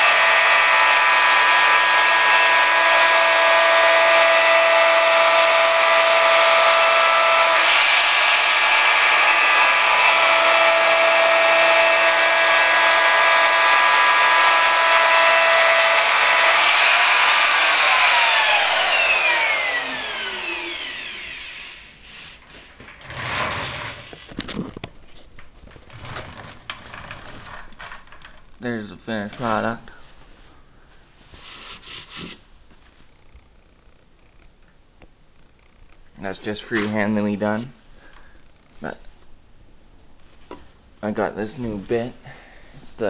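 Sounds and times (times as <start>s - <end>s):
router winding down: 0.0s - 24.6s
router whining: 0.0s - 24.9s.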